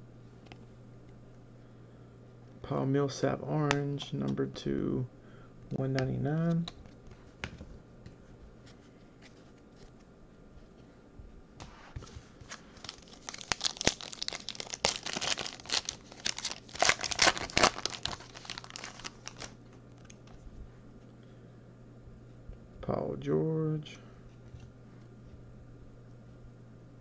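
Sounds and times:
foil wrapper tearing and crinkling: 12.4s - 20.2s.

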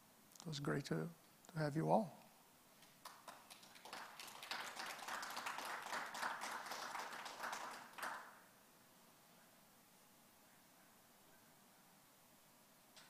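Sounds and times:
small audience clapping: 2.8s - 8.5s.

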